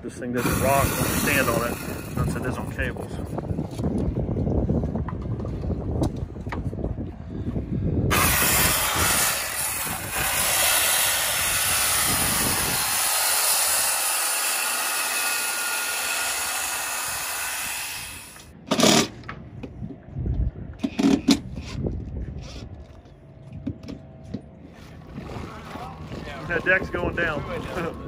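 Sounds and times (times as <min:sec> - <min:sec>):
circular saw cutting board: 0:00.4 - 0:02.3, 0:08.1 - 0:18.5.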